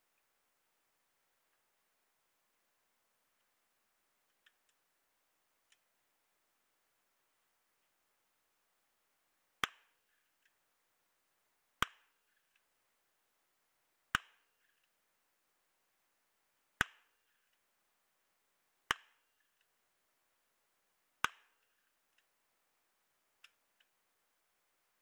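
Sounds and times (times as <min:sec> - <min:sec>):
faint click: 0:05.7 - 0:05.9.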